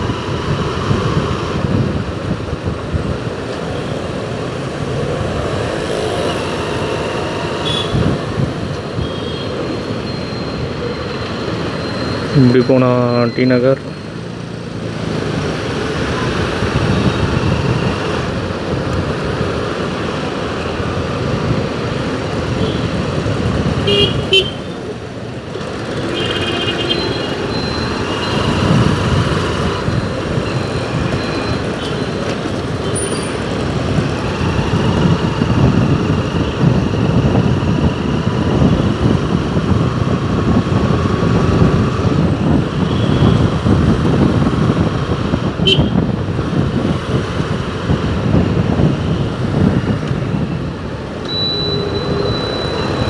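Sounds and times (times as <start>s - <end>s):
traffic engines rumbling: 0.0s - 53.0s
car horns honking: 7.6s - 8.2s, 23.8s - 24.7s, 25.9s - 28.7s, 45.6s - 46.0s.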